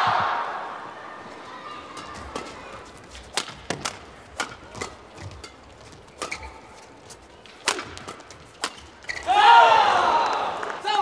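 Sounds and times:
faint arena hum: 0:00.0 - 0:11.0
rackets striking shuttlecock: 0:02.0 - 0:09.3.

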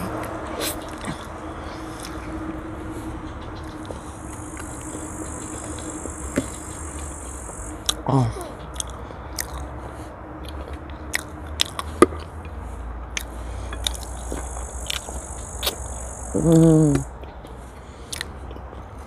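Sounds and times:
falling hum of voice: 0:00.0 - 0:08.8, 0:15.4 - 0:17.2
chewing and biting: 0:00.1 - 0:02.4, 0:07.7 - 0:08.0, 0:08.6 - 0:09.8, 0:10.4 - 0:15.9, 0:17.2 - 0:18.8
high insect buzz: 0:00.1 - 0:08.0, 0:13.9 - 0:17.2
mouth smacks: 0:08.7 - 0:09.8, 0:10.4 - 0:15.8, 0:18.1 - 0:18.4.

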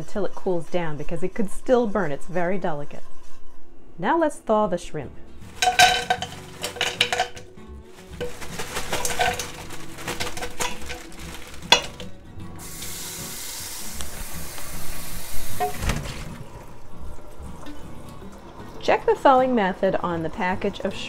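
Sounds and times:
plastic bag rustling: 0:05.4 - 0:12.2
frozen shrimp clattering into pot: 0:05.5 - 0:12.2
tap running water into pot: 0:08.2 - 0:16.6.

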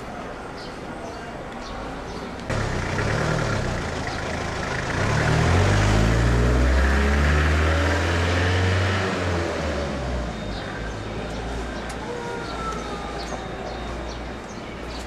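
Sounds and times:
street noise: 0:00.0 - 0:15.0
vehicle engine passing: 0:02.5 - 0:11.8.

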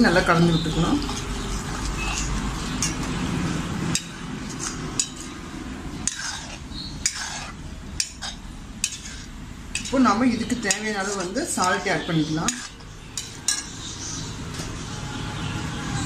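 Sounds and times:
metal ladle scraping and clinking pan: 0:01.0 - 0:05.4, 0:06.0 - 0:13.9.

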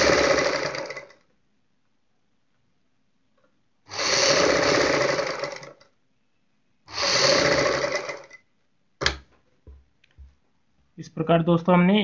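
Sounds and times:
sewing machine stitching: 0:00.0 - 0:01.2, 0:03.9 - 0:05.8, 0:06.9 - 0:08.4.

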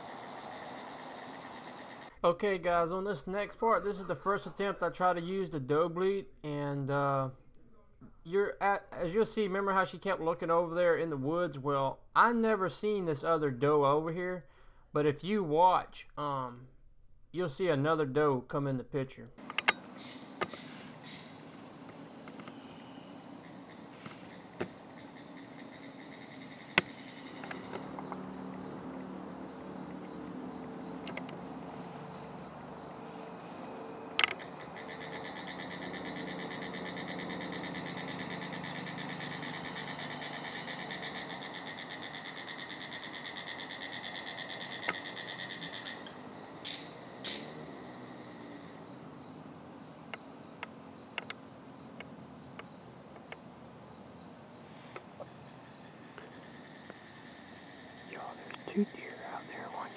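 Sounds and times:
insects buzzing: 0:00.0 - 0:02.3, 0:19.4 - 0:59.9
faint low hum: 0:18.8 - 0:59.9
sharp clicks: 0:19.4 - 0:19.8, 0:31.0 - 0:31.4, 0:34.2 - 0:34.5.

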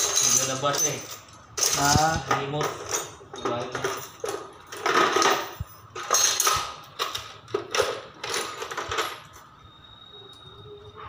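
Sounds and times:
metal tools rattling in toolbox: 0:00.0 - 0:09.5.

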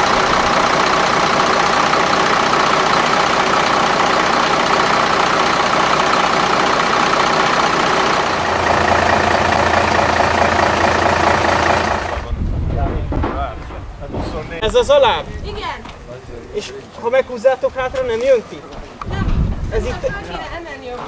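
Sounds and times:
diesel truck engines idling: 0:00.0 - 0:12.4.

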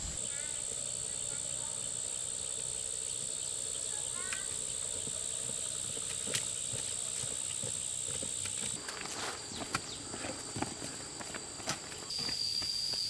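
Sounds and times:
high-pitched insect drone: 0:00.0 - 0:08.8, 0:12.1 - 0:13.0
footsteps on dirt path: 0:03.1 - 0:13.0.

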